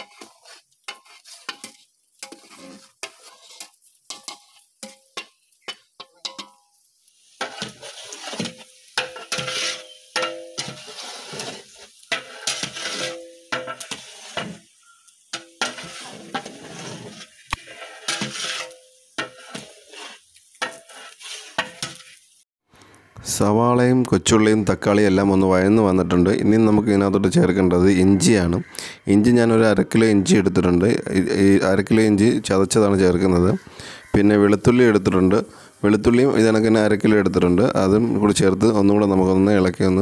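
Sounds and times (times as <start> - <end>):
metal spatula scraping pot: 0.0 - 6.7, 7.3 - 22.3
frying sizzle: 0.0 - 22.5, 24.6 - 40.0.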